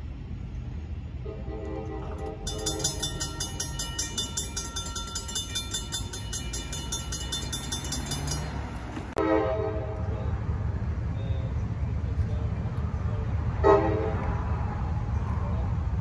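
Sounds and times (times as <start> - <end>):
steady low rumble: 0.0 - 16.0
train horn: 1.2 - 3.0, 9.2 - 10.1, 13.6 - 14.3
crossing bell ringing: 1.8 - 9.3.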